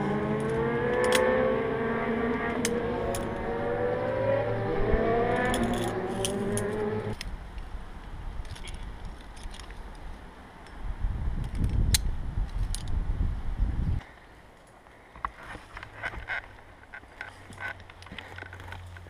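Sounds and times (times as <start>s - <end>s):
vehicle engine accelerating: 0.0s - 7.2s
wind buffeting microphone: 0.0s - 9.2s, 10.8s - 14.0s.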